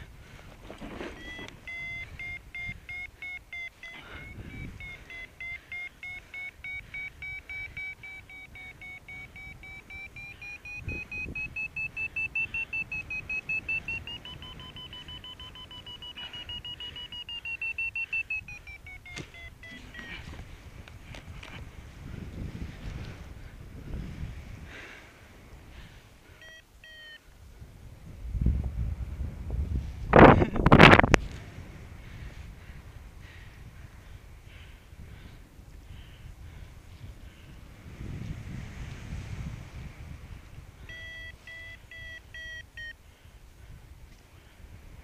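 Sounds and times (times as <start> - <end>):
variometer beeping: 1.1 - 20.2, 26.4 - 27.2, 40.8 - 43.0.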